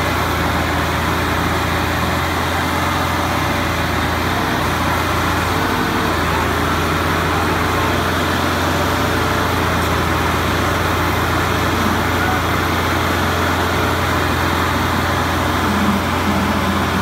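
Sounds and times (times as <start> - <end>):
tractor diesel engines straining: 0.0 - 17.0.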